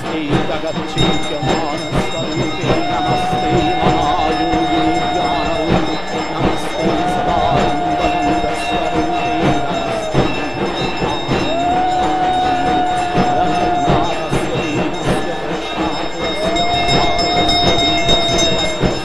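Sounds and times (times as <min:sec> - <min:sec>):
brass hand bell ringing: 0:00.0 - 0:19.0.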